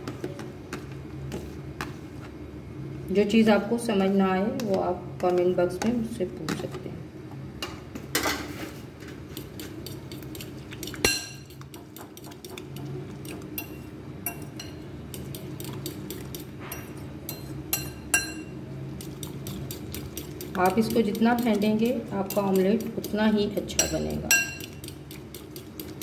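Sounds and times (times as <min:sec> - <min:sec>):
spoon clinking against glass bowl: 0:11.0 - 0:11.6, 0:16.7 - 0:18.6, 0:23.8 - 0:24.8.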